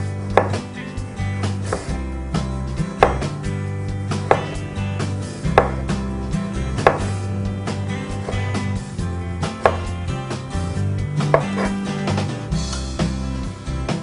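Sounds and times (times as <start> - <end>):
knife knocking on plastic board: 0.3 - 0.6, 1.7 - 2.0, 3.0 - 3.3, 4.2 - 4.7, 5.5 - 6.0, 6.8 - 7.2, 8.2 - 8.6, 9.6 - 10.0, 11.3 - 11.8
knife slicing tomato: 0.3 - 0.7, 1.4 - 3.4, 4.1 - 6.0, 6.7 - 7.4, 8.1 - 8.8, 9.4 - 10.4, 11.2 - 12.2.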